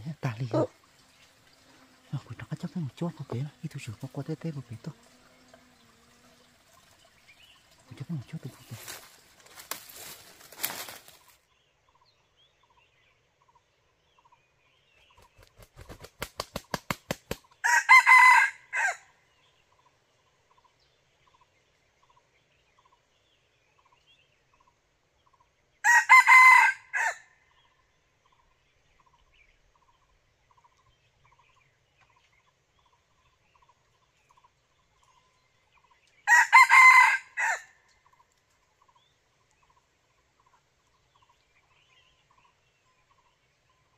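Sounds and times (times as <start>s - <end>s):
wings flapping: 15.2s - 17.5s
rooster crowing: 17.6s - 19.1s, 25.8s - 27.3s, 36.3s - 37.8s.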